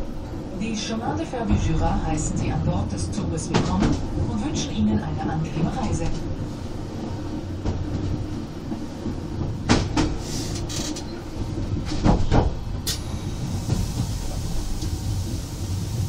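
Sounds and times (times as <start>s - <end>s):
railcar rumble from on board: 0.0s - 16.0s
wheels clacking over track joints: 9.6s - 11.2s.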